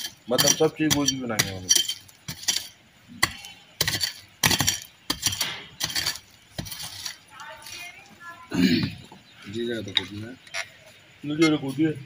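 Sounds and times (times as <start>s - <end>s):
pickaxe striking earth and rubble: 0.0s - 7.2s.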